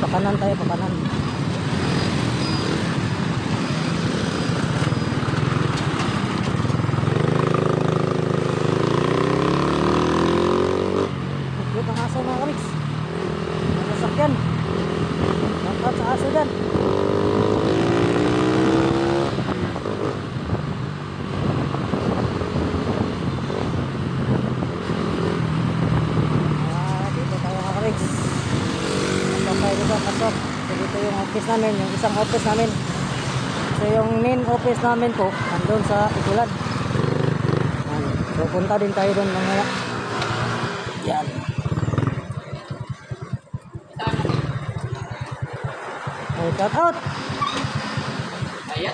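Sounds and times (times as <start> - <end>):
motorcycle engine accelerating: 0.0 - 33.6, 36.1 - 48.9
road traffic: 0.0 - 48.9
motorcycle engine running: 41.0 - 48.9.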